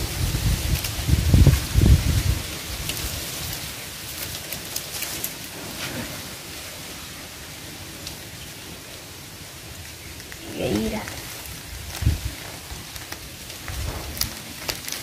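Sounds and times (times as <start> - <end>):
wind buffeting microphone: 0.0 - 3.8, 10.4 - 14.6
plastic sheet crackling: 0.0 - 8.7, 9.3 - 15.0
steady hiss of wind: 0.0 - 15.0.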